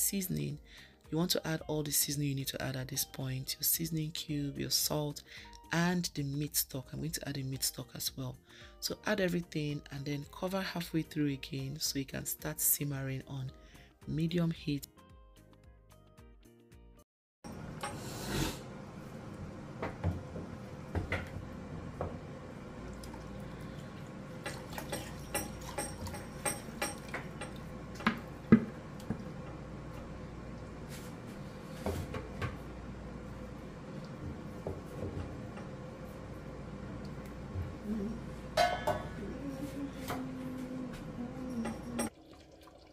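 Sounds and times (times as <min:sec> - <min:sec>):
spoon knocking and scraping pot: 0:24.4 - 0:29.6.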